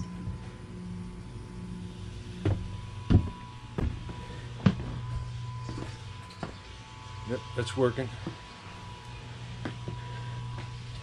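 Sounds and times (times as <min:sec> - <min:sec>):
air conditioner and pump humming: 0:00.0 - 0:11.0
footsteps on deck: 0:02.4 - 0:06.6, 0:09.6 - 0:11.0.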